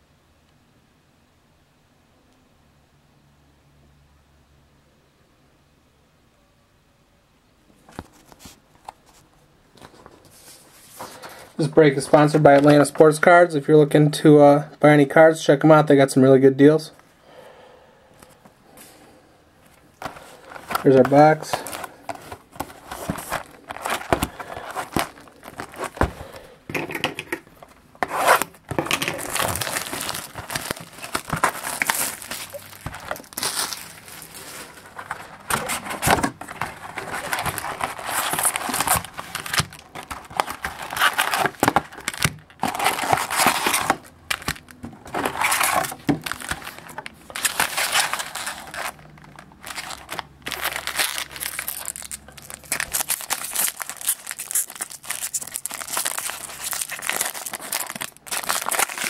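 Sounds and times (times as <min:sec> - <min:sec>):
foil card packs crackling: 0:09.8 - 0:13.3, 0:19.7 - 0:26.6, 0:27.4 - 0:59.0
packaging tearing and crinkling: 0:20.0 - 0:26.5, 0:27.4 - 0:59.0.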